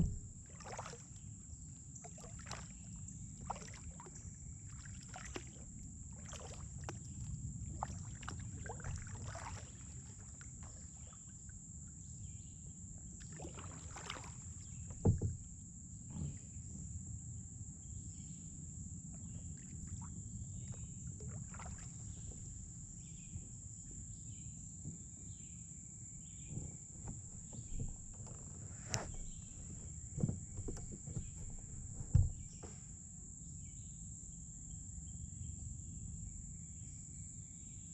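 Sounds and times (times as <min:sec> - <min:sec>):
sharp knocks: 0:00.0 - 0:00.4, 0:14.9 - 0:15.4, 0:29.0 - 0:32.7
paddle splashing in water: 0:00.0 - 0:01.2, 0:02.0 - 0:11.3, 0:13.2 - 0:15.5, 0:19.6 - 0:22.6, 0:26.9 - 0:32.9
water and hull rush: 0:00.0 - 0:01.2, 0:02.0 - 0:11.2, 0:13.2 - 0:15.5, 0:21.2 - 0:22.6, 0:27.0 - 0:32.8.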